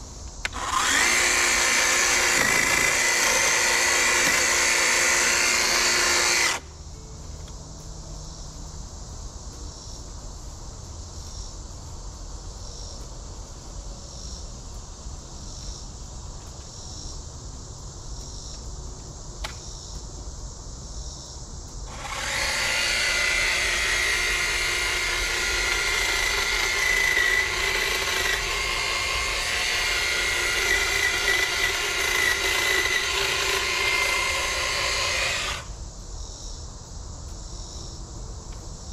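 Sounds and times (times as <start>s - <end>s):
hedge trimmer cutting brush: 0.4s - 6.7s, 21.8s - 35.8s.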